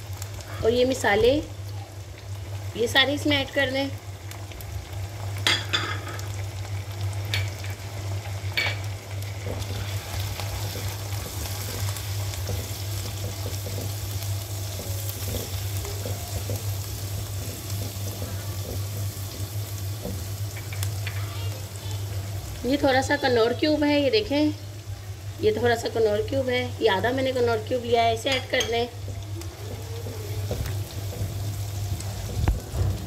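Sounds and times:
food sizzling in hot oil: 0:00.0 - 0:33.0
spatula scraping wok: 0:09.3 - 0:19.5.

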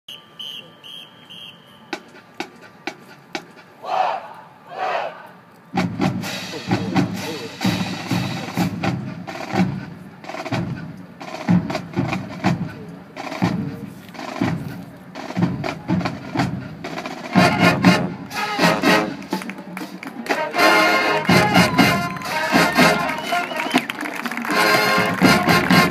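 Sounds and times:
marching band drums: 0:01.4 - 0:04.0, 0:05.7 - 0:25.9
brass instruments playing: 0:06.0 - 0:25.9.

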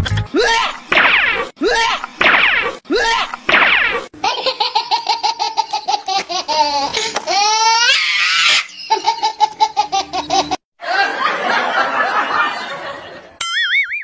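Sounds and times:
laughter sound effect: 0:08.7 - 0:14.0.

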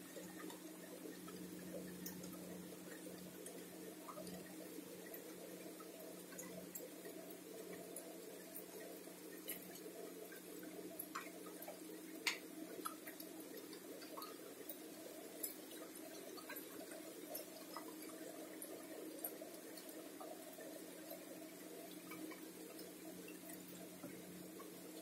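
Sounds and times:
water dripping onto leaves: 0:11.0 - 0:14.4.

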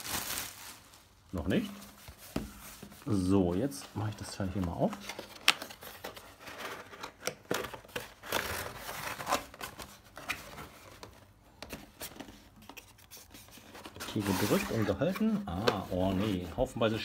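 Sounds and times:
cardboard scraping and rubbing: 0:11.8 - 0:17.0.

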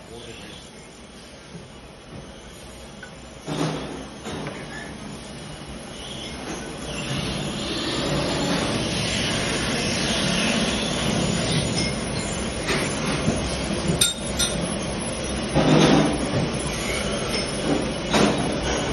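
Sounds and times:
drilling machine running: 0:06.7 - 0:13.9.

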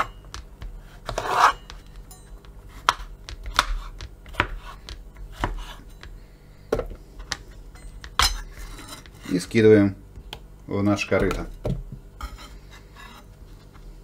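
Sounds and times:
knife chopping on plastic board: 0:00.0 - 0:08.4, 0:11.1 - 0:12.0.

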